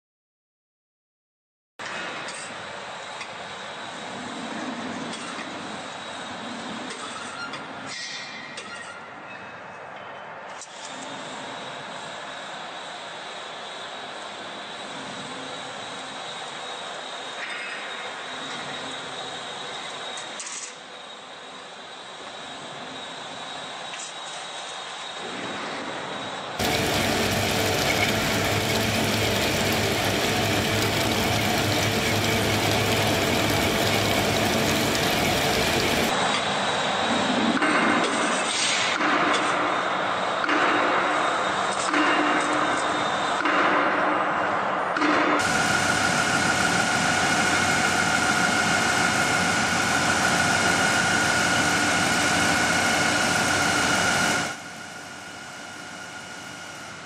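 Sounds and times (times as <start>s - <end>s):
thin machine noise: 10.6s - 43.8s, 45.0s - 57.0s
laser cutting machine hum: 26.6s - 36.8s, 45.4s - 57.0s.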